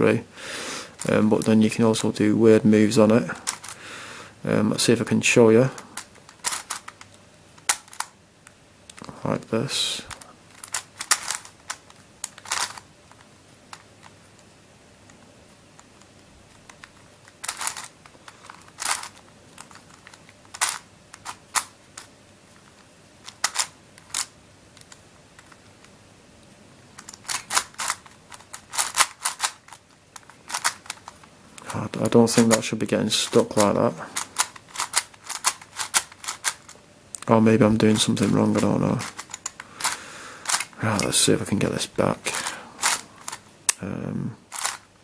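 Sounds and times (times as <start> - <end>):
plastic puzzle cube clacking: 3.4 - 3.8, 5.8 - 9.1, 10.1 - 14.4, 15.0 - 26.0, 27.0 - 36.8, 37.7 - 41.2, 42.2 - 43.4, 44.5 - 44.9.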